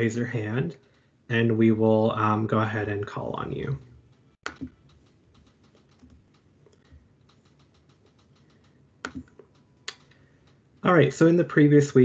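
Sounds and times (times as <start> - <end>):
computer keyboard typing: 4.4 - 10.6.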